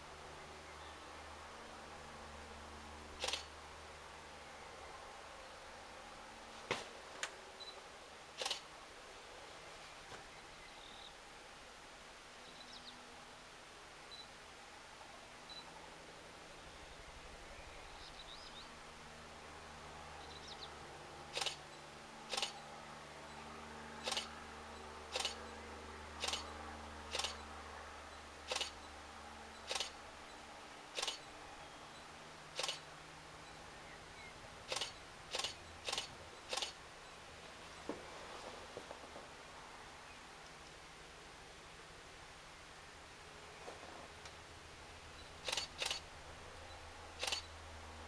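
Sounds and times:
loud sharp clicks: 3.2 - 3.5, 8.4 - 8.7, 21.3 - 21.6, 22.3 - 22.6, 24.0 - 24.3, 25.1 - 25.4, 26.2 - 26.5, 27.1 - 27.4, 28.5 - 28.8, 29.7 - 30.0, 31.0 - 31.3, 32.6 - 32.9, 34.7 - 36.8, 45.4 - 46.1, 47.2 - 47.5
distant helicopter drone: 16.6 - 37.2.

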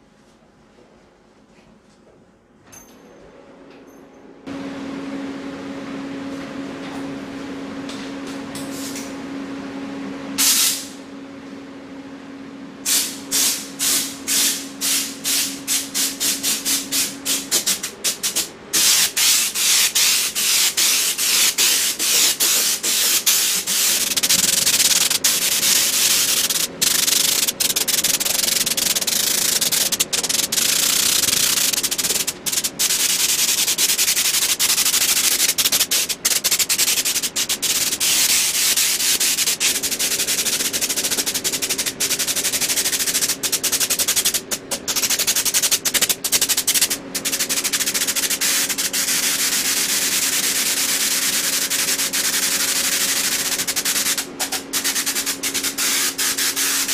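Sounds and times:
steady low hum: 0.0 - 56.9
air spray gun hissing: 10.4 - 11.0, 12.9 - 56.9.

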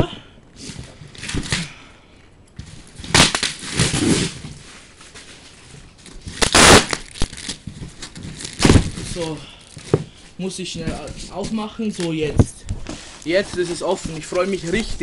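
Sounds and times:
cardboard parcel rustling and ripping: 2.6 - 10.0.

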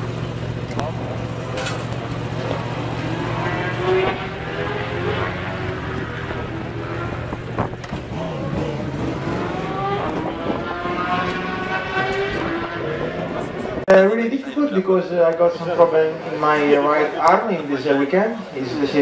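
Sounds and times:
motorcycle engines revving: 0.0 - 13.9.

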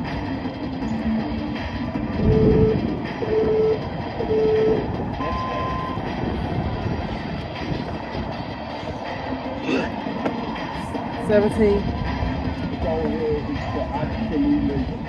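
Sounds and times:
steady rumbling noise: 0.0 - 15.0
timer beeps: 2.2 - 6.1.

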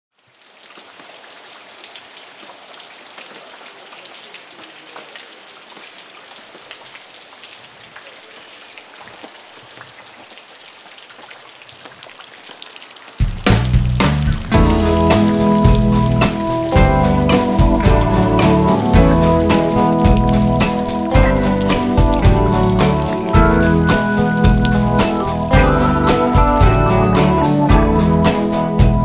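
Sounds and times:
steady rain falling: 0.1 - 29.0.

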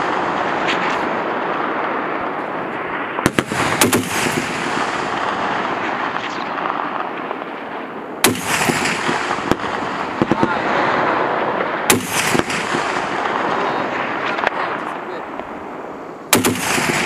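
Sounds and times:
heavy machine gun firing: 3.2 - 5.6, 8.2 - 10.6, 11.9 - 13.4, 16.3 - 17.0.

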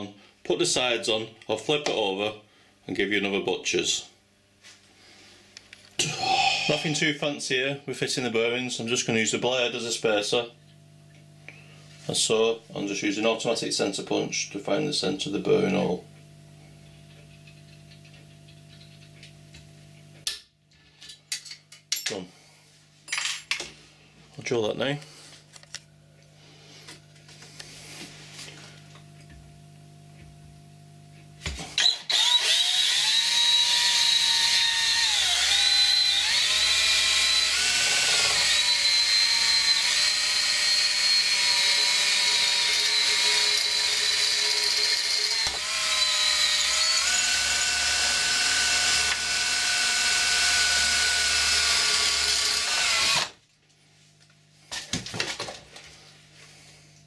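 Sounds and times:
cordless drill boring metal: 31.8 - 53.4.

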